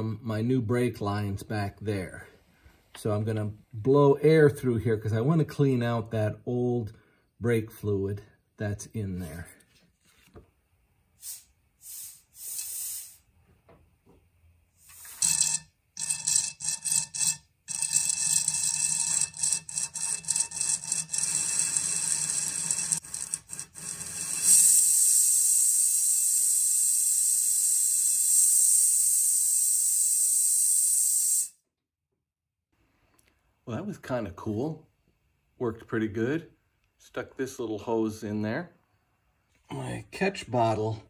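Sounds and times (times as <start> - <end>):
compressed air hissing: 11.2 - 13.3, 23.9 - 31.6.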